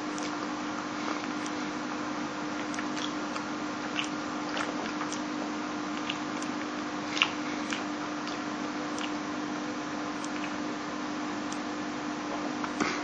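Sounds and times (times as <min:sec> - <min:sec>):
person chewing: 0:00.0 - 0:01.6, 0:02.6 - 0:09.3, 0:10.2 - 0:10.7
low hum and hiss: 0:00.0 - 0:13.0
wet mouth clicks and smacks: 0:02.6 - 0:05.3, 0:06.0 - 0:08.4, 0:09.0 - 0:09.2.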